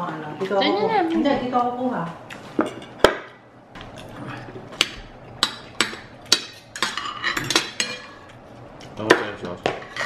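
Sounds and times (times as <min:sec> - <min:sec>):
cutlery clinking on plates: 0:04.8 - 0:08.4.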